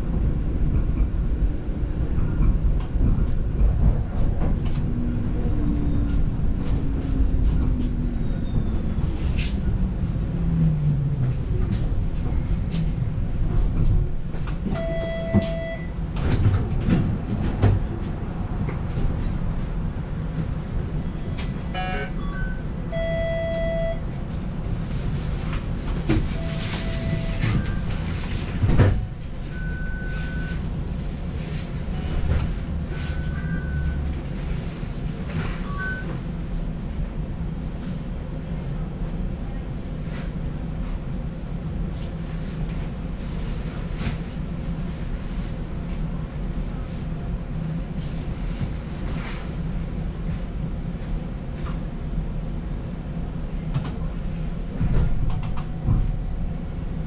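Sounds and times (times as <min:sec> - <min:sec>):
streetcar rumble: 0:00.0 - 0:57.0
short beeps: 0:14.8 - 0:15.9, 0:21.8 - 0:24.0.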